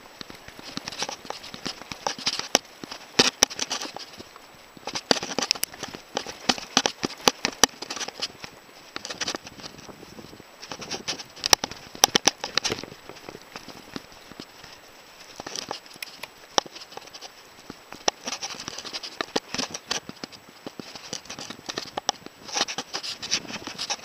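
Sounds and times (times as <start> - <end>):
tyres crunching on dirt: 0.0 - 24.0
bike frame rattling and clicking: 0.5 - 9.9, 10.6 - 24.0.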